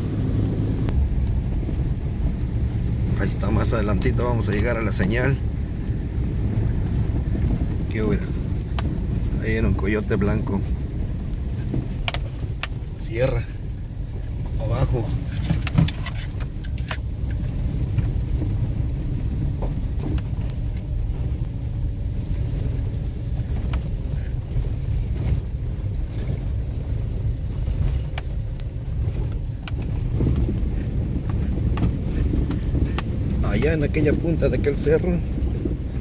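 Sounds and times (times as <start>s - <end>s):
car engine and tyres rumbling: 0.0s - 36.0s
knocks from rough road: 14.5s - 21.6s, 22.4s - 36.0s.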